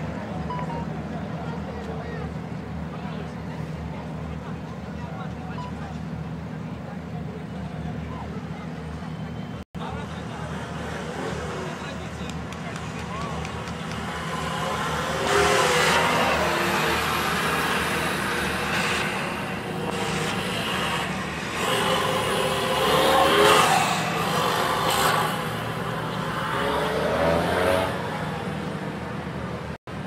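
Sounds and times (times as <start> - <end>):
truck engine revving: 10.1 - 28.5.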